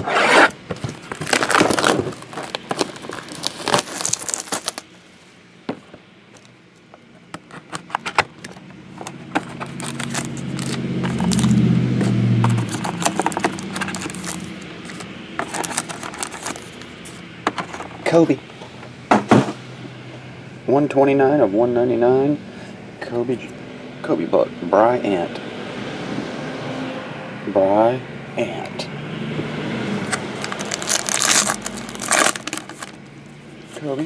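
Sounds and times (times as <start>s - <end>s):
cardboard packaging crackling: 0.0s - 4.9s, 6.4s - 17.2s, 30.1s - 33.1s
plastic card cases handled: 0.6s - 4.8s, 5.7s - 18.0s, 30.1s - 33.0s.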